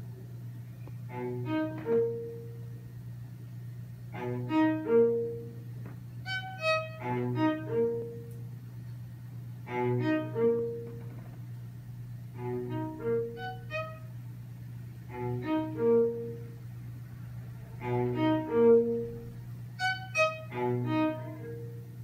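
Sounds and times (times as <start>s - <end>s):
string quartet playing: 1.1s - 2.6s, 4.2s - 5.6s, 6.3s - 8.4s, 9.6s - 11.2s, 12.2s - 14.1s, 15.0s - 16.7s, 17.7s - 21.8s.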